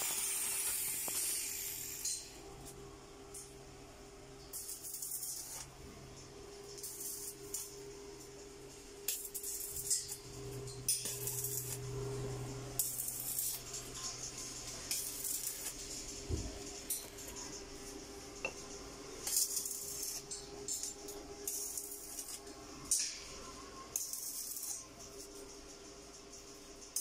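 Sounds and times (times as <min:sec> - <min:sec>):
welding arc crackling: 0:00.0 - 0:02.2, 0:04.5 - 0:23.0, 0:23.9 - 0:25.4
steady hum: 0:00.0 - 0:27.0.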